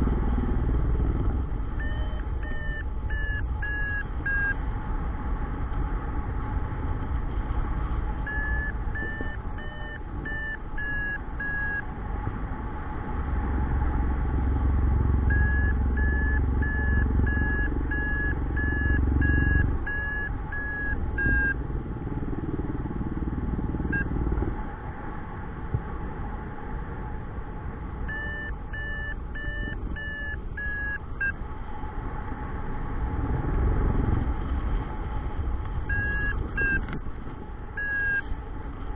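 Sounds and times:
variometer beeping: 1.7s - 4.6s, 8.2s - 11.9s, 15.2s - 21.6s, 23.8s - 24.3s, 28.0s - 31.4s, 35.8s - 37.0s, 37.7s - 38.4s.

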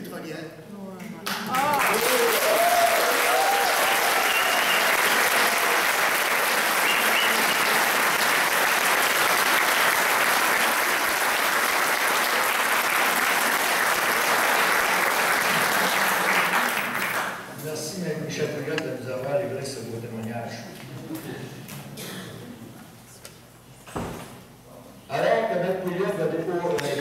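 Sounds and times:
crowd applauding: 1.2s - 17.5s.

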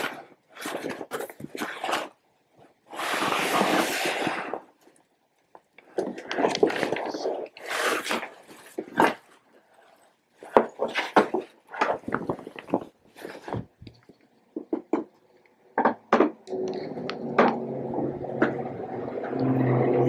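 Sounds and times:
steady low hum: 16.5s - 20.0s.

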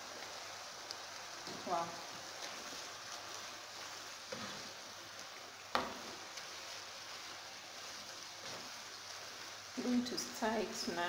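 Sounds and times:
spinach sizzling in a pan: 0.0s - 11.0s
wooden spoon knocking on pan: 5.7s - 6.1s.

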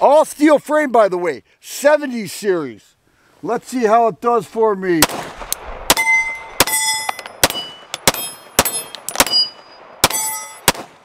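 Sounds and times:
pistol shots: 5.0s - 11.0s
steel target plate ringing: 5.9s - 10.7s.

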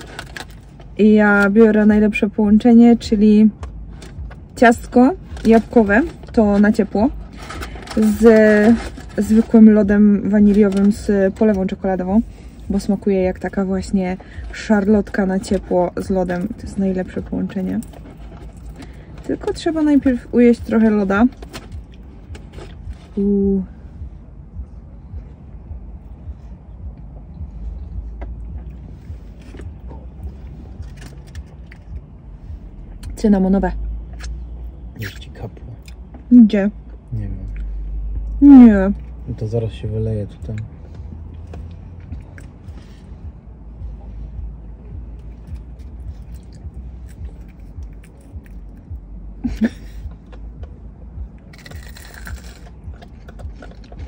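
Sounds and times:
car rumble inside cabin: 0.0s - 54.0s.

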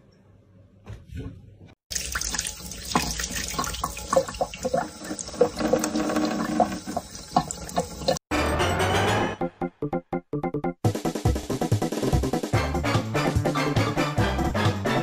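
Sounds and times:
faucet water running into sink: 1.9s - 8.3s.

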